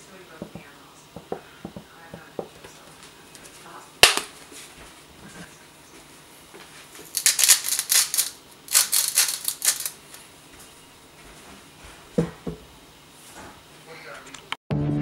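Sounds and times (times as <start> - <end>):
salt mill grinding: 7.0 - 10.1.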